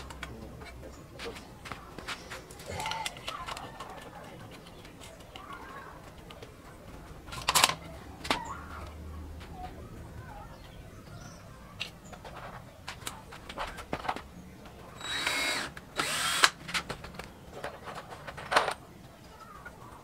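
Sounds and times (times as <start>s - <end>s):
cordless drill motor: 15.0s - 16.6s.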